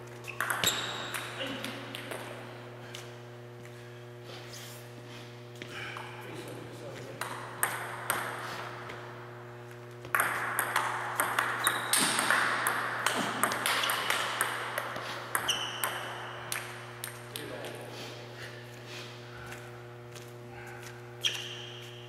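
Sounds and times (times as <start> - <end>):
table tennis ball clicking: 0.4 - 1.3, 10.1 - 17.4.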